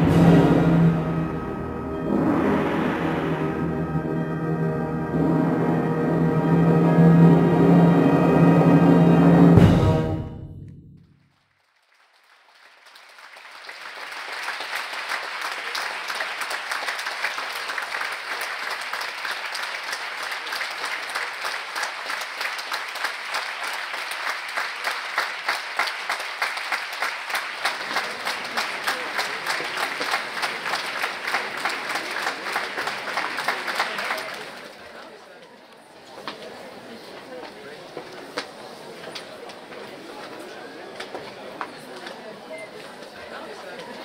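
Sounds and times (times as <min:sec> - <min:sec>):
wind orchestra chord: 0:00.0 - 0:10.6
audience applause: 0:11.3 - 0:44.0.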